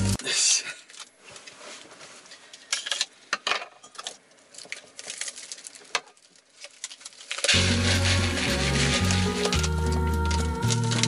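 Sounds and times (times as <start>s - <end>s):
plastic packaging crinkling: 0.8s - 3.1s, 3.9s - 11.0s
music: 7.5s - 11.0s.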